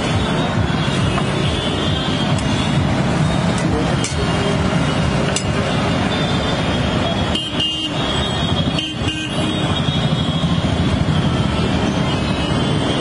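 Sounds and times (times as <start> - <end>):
road traffic noise: 0.0 - 13.0
vehicle horn toots: 6.2 - 10.7.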